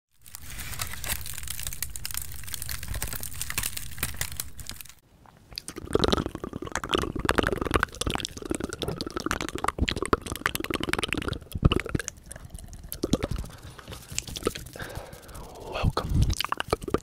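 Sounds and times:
dense crackle of fine clicks: 0.1 - 17.0
mouth sounds and tongue flutters: 5.2 - 17.0
fingers fluttering over lips: 5.5 - 17.0.

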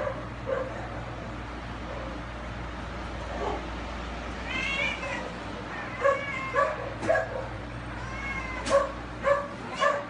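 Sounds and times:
dog yipping barks: 0.0 - 0.9, 5.9 - 7.6, 8.6 - 10.0
dog whining: 4.7 - 10.0.

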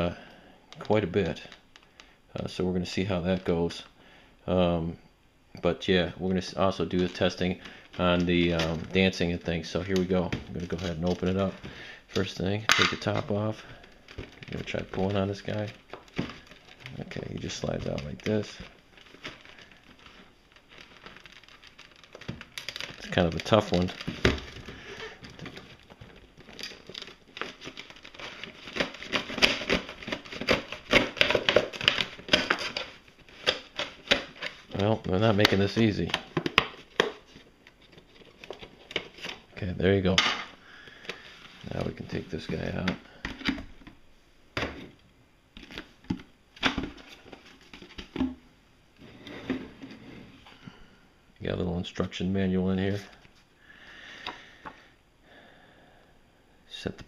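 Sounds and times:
plastic packaging crinkling: 6.2 - 44.0.

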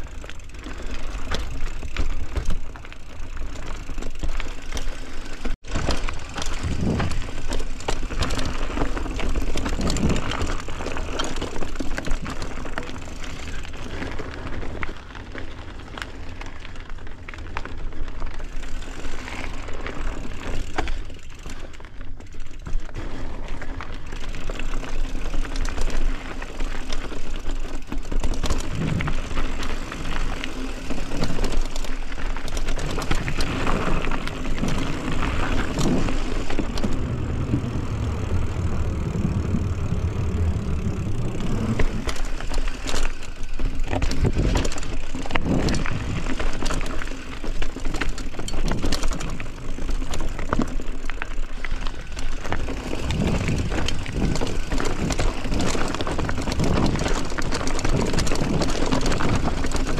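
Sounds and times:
bicycle clicks and rattles: 0.0 - 59.9
bicycle rolling: 0.0 - 59.9.

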